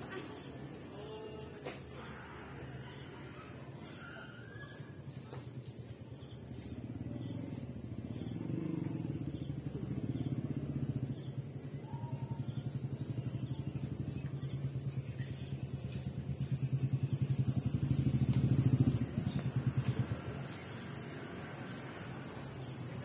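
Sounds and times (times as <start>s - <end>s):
engine running with pulsing note: 4.9s - 23.0s.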